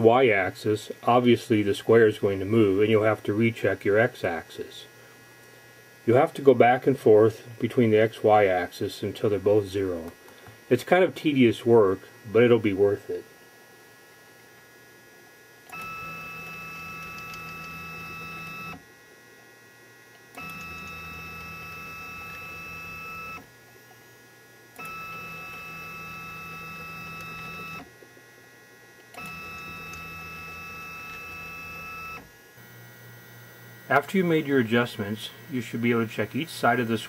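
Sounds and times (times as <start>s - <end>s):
stepper motor whine: 15.7s - 18.8s, 20.3s - 37.0s.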